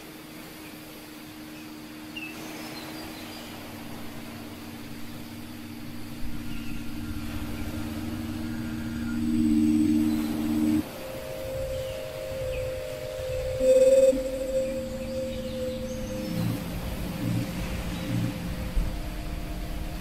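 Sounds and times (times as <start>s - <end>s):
faint outdoor hiss: 0.0s - 20.0s
low ambient drone: 0.0s - 20.0s
bird chirps: 5.0s - 10.8s, 11.4s - 18.6s.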